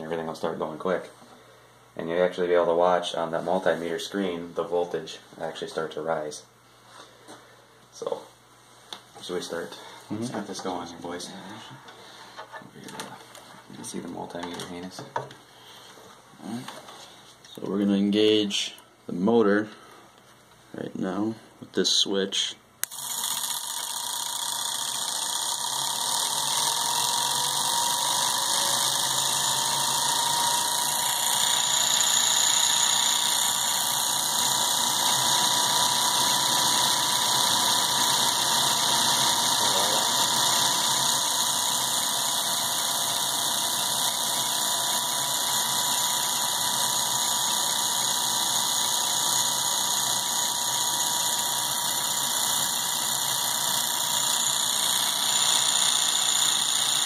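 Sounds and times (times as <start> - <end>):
electric motor whine: 22.8 - 57.0.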